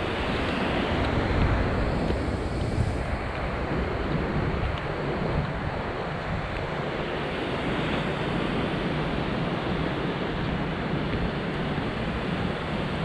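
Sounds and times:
ocean surf washing: 0.0 - 13.0
wind gusting on microphone: 0.0 - 13.0.

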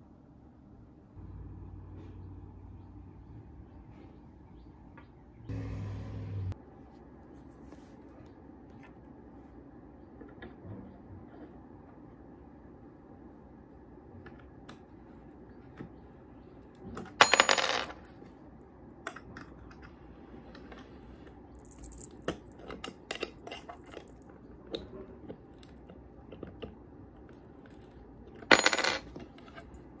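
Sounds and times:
small metal pieces jingling: 21.6 - 22.2.

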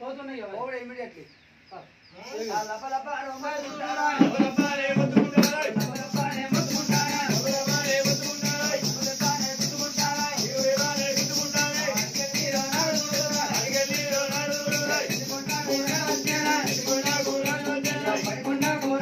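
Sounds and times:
dhol drum beating: 4.0 - 19.0
jingling ankle bells: 4.6 - 19.0.

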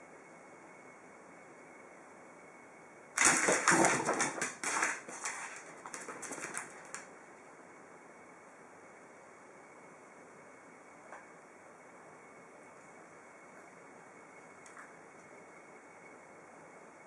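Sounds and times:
dog claws scrabbling on floor: 3.2 - 7.1.

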